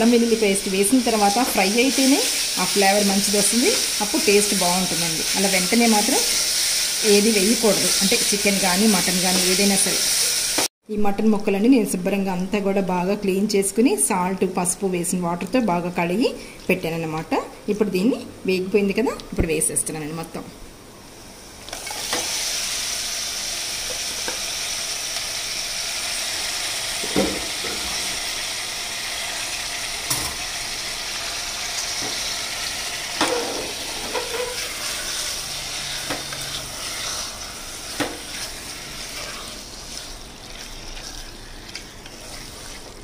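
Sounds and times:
meat sizzling in oil: 0.0 - 10.7, 21.8 - 43.0.

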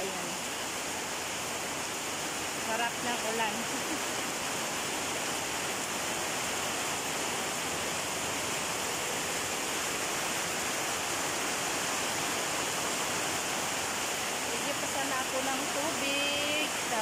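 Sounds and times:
rain pouring on pavement: 0.0 - 17.0.

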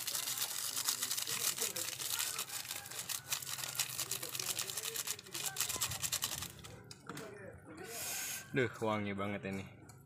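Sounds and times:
plastic sachet crinkling: 0.0 - 6.7.

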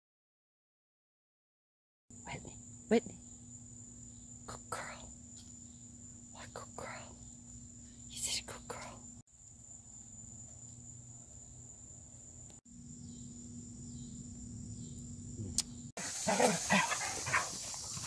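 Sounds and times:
dogs vocalizing while playing: 16.0 - 18.0.

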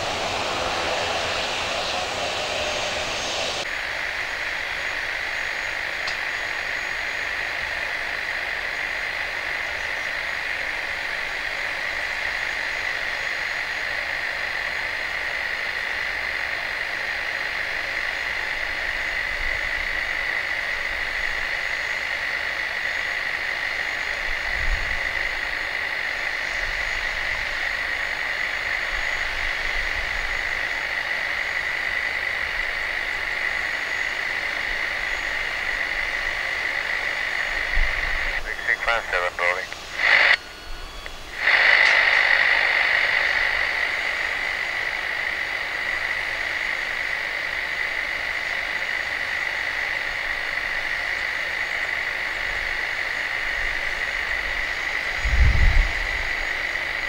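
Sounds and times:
high engine whine: 0.0 - 57.0
jet engines running: 0.0 - 57.0.

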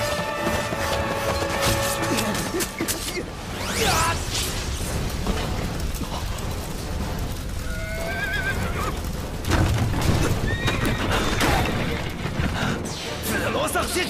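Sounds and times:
horses whinnying: 7.6 - 9.0, 10.4 - 11.9.

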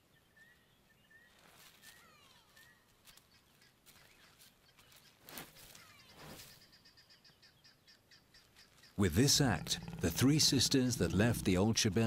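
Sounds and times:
faint bird calls: 1.2 - 11.6.

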